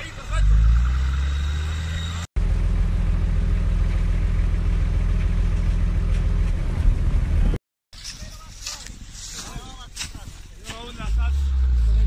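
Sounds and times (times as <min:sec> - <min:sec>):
vehicle engine droning: 0:00.0 - 0:07.6, 0:10.6 - 0:12.0.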